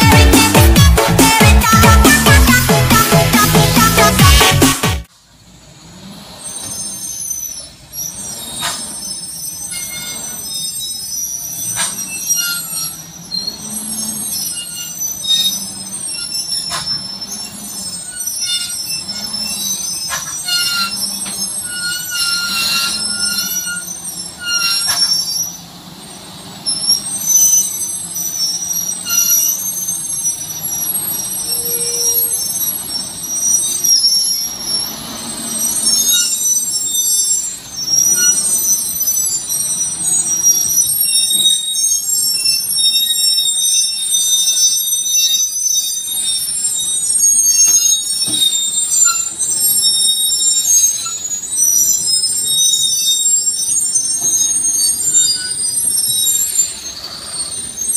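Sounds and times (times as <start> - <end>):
truck engine hum: 0.0 - 10.3
truck brakes squealing: 0.0 - 57.9.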